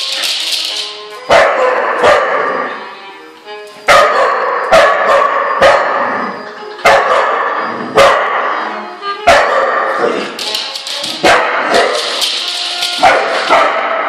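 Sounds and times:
dog barking angrily: 1.3 - 2.6, 3.9 - 6.1, 6.8 - 8.6, 11.2 - 12.0, 13.0 - 14.0.

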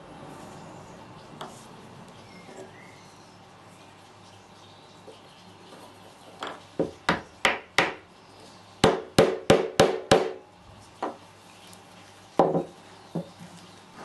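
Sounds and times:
wood knocking on workbench: 12.4 - 13.3.

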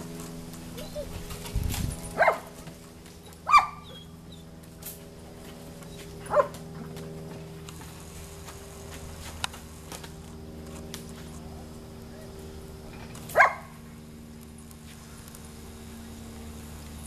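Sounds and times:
faint steady hum: 0.0 - 17.0
dog barking: 2.2 - 2.5, 3.5 - 4.0, 6.3 - 6.6, 13.3 - 13.7.

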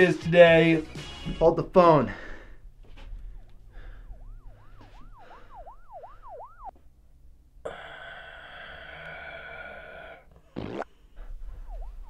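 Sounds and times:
faint yelping siren: 2.9 - 6.8, 11.2 - 12.0.

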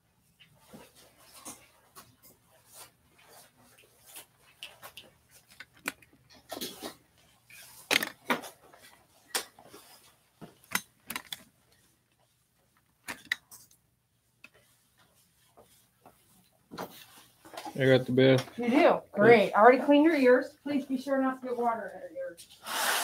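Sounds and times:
objects clicking and clattering: 4.6 - 8.6, 10.6 - 11.5.

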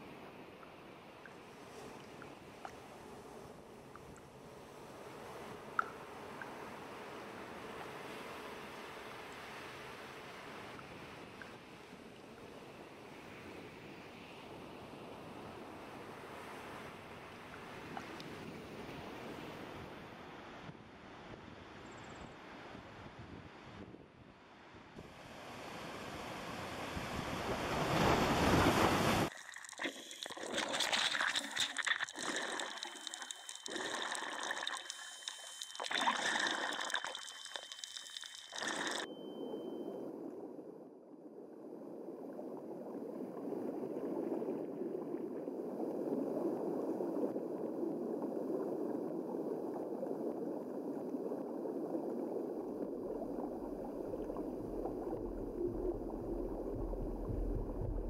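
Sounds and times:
wind and surf: 0.0 - 29.3
muffled underwater rush: 25.8 - 58.0
underwater bubbling: 29.2 - 58.0.

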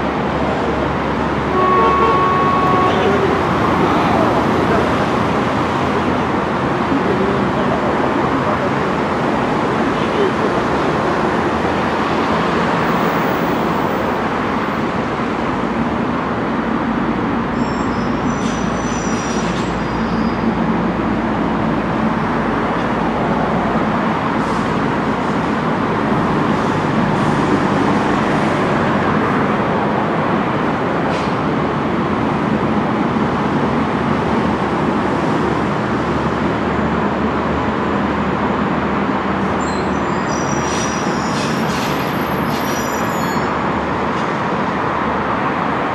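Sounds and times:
traffic roar: 0.0 - 45.9
faint high squeaks: 39.6 - 43.5.

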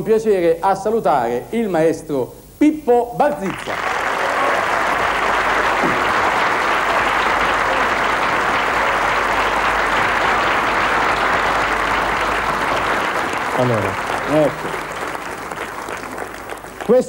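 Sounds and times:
audience applauding: 3.4 - 17.0.

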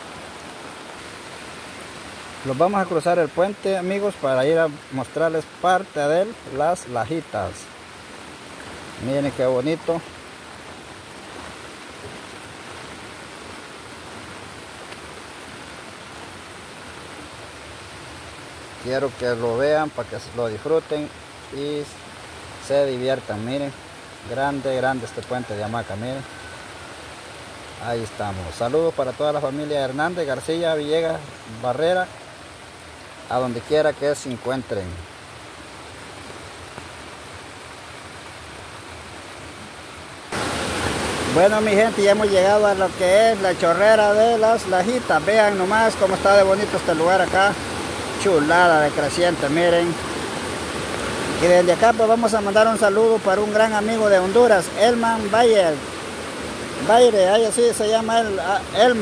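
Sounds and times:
river in flood rushing: 0.0 - 59.0.

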